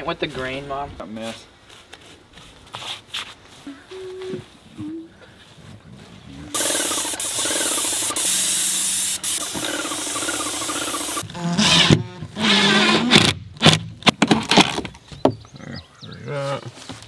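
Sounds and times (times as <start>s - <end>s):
paint sprayer hissing: 6.5s - 11.2s.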